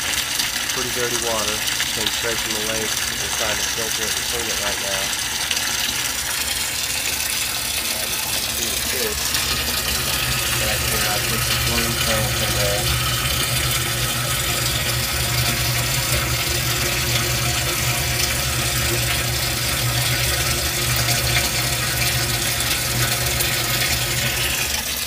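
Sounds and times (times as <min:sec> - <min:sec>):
water pouring into tank: 0:00.0 - 0:25.0.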